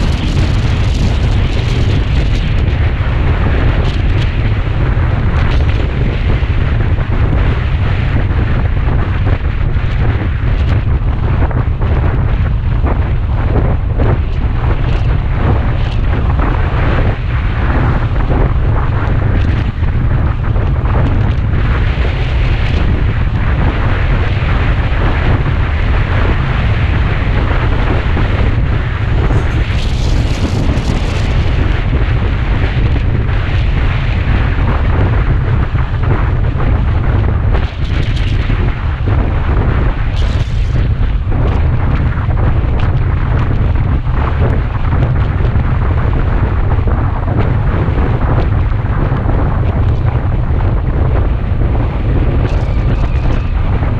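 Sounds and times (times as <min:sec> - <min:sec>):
road noise: 0:00.0 - 0:53.9
wind buffeting microphone: 0:00.0 - 0:53.9.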